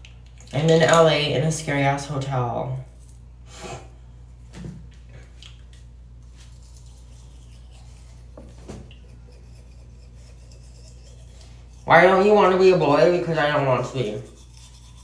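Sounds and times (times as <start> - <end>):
exhaust fan humming: 0.0 - 15.0
toothbrush scrubbing teeth: 6.2 - 15.0.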